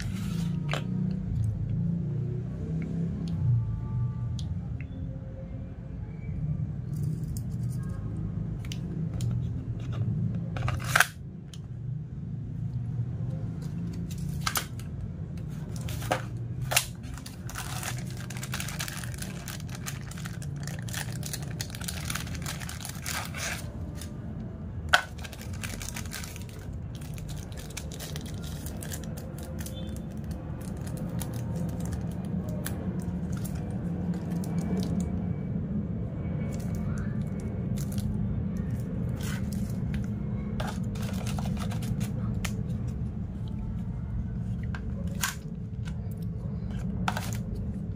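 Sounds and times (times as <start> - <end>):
plastic bag crinkling: 15.6 - 24.1, 25.0 - 34.9, 40.6 - 42.2.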